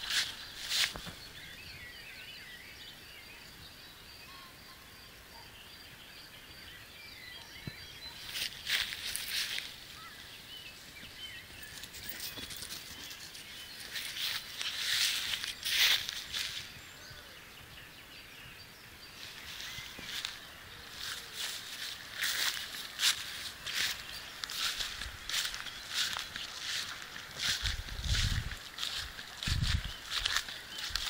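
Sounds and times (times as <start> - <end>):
rustling through grass: 0.0 - 1.4, 8.1 - 10.2, 12.0 - 16.9, 19.2 - 31.0
faint distant birdsong: 0.0 - 31.0.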